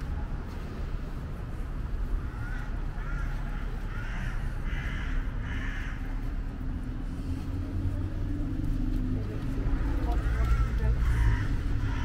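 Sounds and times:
vehicle engine hum: 0.0s - 12.0s
crow cawing: 2.2s - 6.1s, 9.8s - 12.0s.

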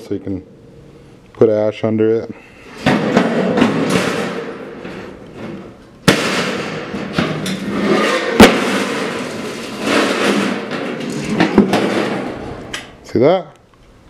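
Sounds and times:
sharp metal bangs: 2.7s - 12.8s.

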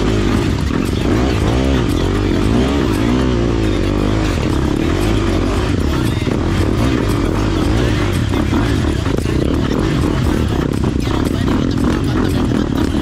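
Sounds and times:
dirt bike engine revving: 0.0s - 13.0s.

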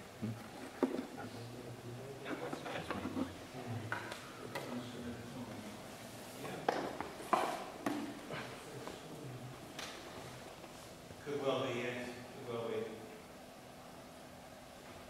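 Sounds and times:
low murmured voices: 0.2s - 6.8s.

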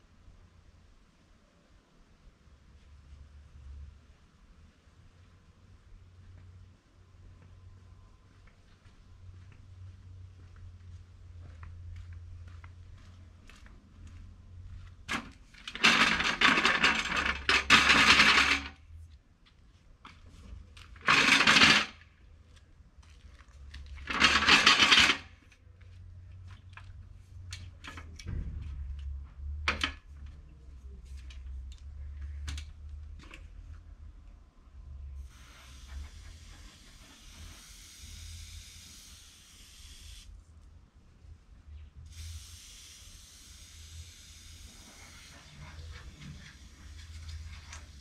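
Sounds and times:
soft steady hiss: 0.0s - 15.6s.

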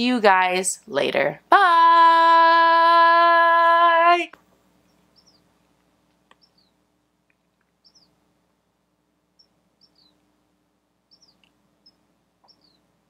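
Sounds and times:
steady low hum: 0.4s - 13.0s
faint high chirps falling in pitch: 11.1s - 12.8s.

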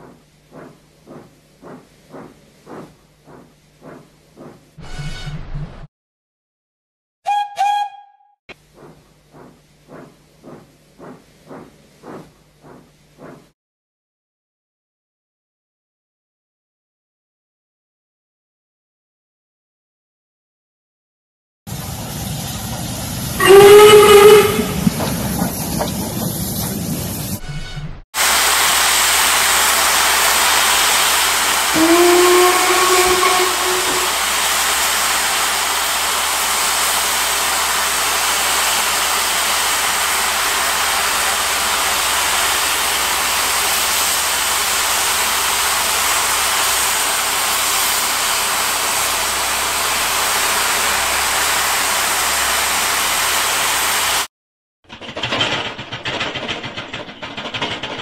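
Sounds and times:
steam whistle blast: 7.2s - 8.4s, 23.4s - 24.8s, 31.6s - 34.4s
loud steam hiss: 28.2s - 54.3s.

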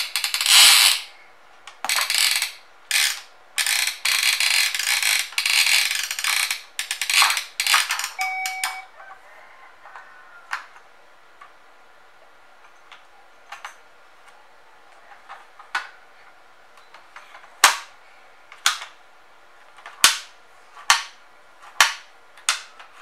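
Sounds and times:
plastic toy clacking: 0.0s - 1.1s, 1.7s - 8.7s.

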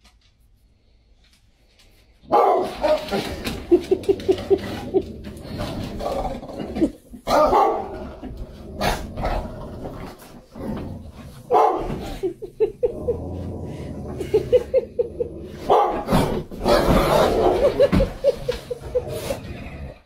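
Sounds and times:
dogs barking: 2.3s - 3.3s, 7.3s - 8.0s, 11.4s - 12.4s, 15.6s - 18.0s.

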